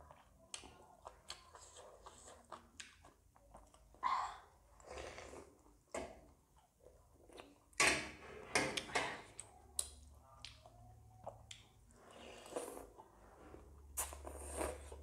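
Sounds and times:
noodles slurped and chewed: 0:00.0 - 0:04.0, 0:09.2 - 0:15.0.

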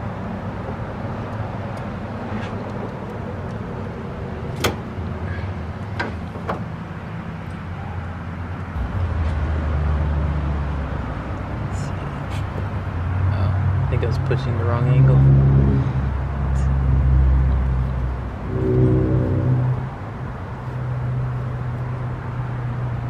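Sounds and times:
steady low hum: 0:15.1 - 0:21.8.

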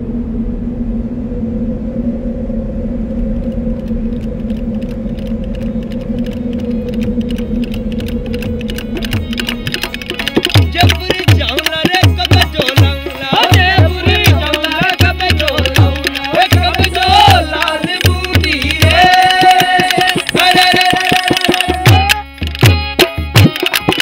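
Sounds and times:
low drone: 0:00.0 - 0:11.1
light clicking percussion: 0:03.4 - 0:24.0
hand drums with bending bass: 0:07.0 - 0:24.0.

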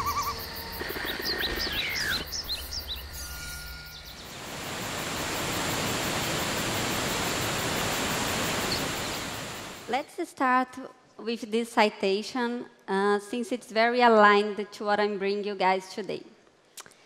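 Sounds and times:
bird-like chirps and whistles: 0:00.0 - 0:04.4
waterfall rushing: 0:04.2 - 0:09.9.

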